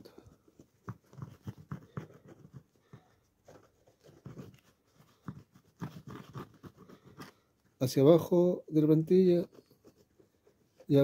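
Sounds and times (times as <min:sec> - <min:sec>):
glue bottle tip scratching fabric: 0:04.0 - 0:07.4.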